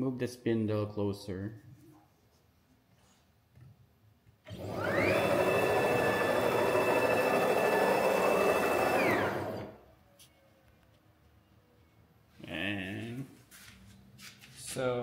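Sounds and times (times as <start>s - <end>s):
stepper motor whine: 4.5s - 9.8s.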